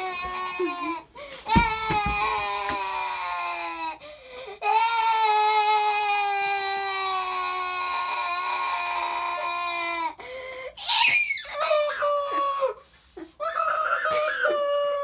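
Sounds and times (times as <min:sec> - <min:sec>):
boy wailing mock sobs: 0:00.0 - 0:04.0, 0:04.6 - 0:15.0
boy high shriek: 0:10.8 - 0:12.8.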